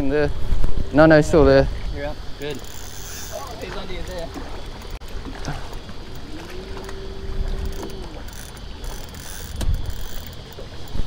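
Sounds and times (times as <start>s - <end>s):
low rumble of water: 0.0s - 11.0s
wind: 0.0s - 11.0s
electric trolling motor humming: 0.7s - 11.0s.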